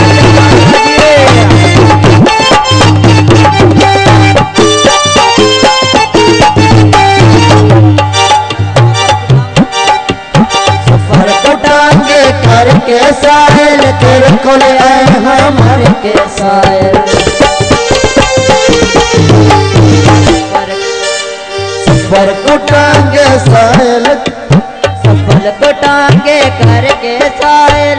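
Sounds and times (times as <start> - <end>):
held melody notes: 0.0 - 11.7, 17.1 - 23.3
fast hand drum playing: 0.0 - 21.2, 21.8 - 27.9.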